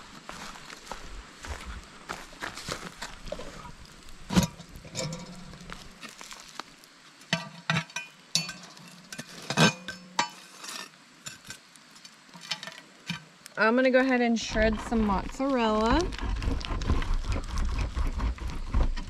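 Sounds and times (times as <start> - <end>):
cast iron pot clanking: 4.3 - 5.7.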